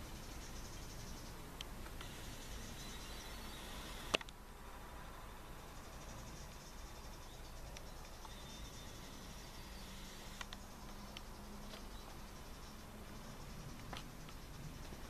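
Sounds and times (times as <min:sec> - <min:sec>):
insects chirping: 0:00.0 - 0:15.0
soft clicks: 0:10.4 - 0:11.9.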